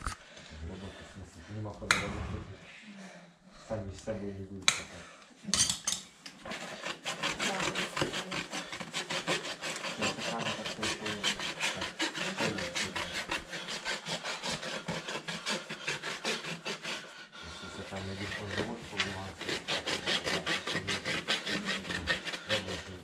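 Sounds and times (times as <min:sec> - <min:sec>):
rasp filing hoof: 0:06.4 - 0:23.0.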